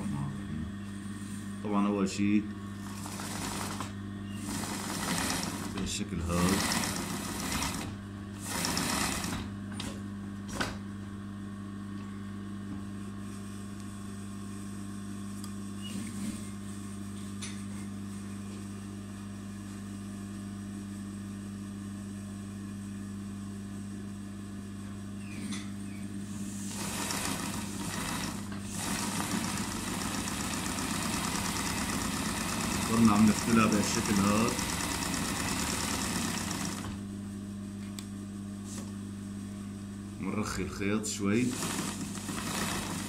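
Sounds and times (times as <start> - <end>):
electric motor humming: 26.5 - 37.0, 41.2 - 43.0
sewing needle stitching: 41.5 - 43.0.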